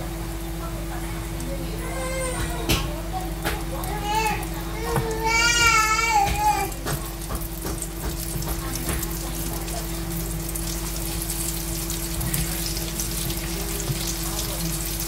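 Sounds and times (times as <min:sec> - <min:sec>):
chicken sizzling in oil: 0:00.0 - 0:15.0.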